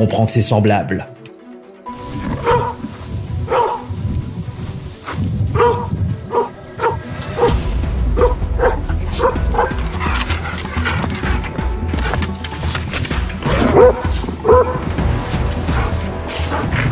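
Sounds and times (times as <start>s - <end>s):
background music with bass: 0.0s - 16.9s
dog barking: 2.4s - 4.0s, 5.5s - 7.6s, 8.2s - 10.8s, 13.4s - 14.9s.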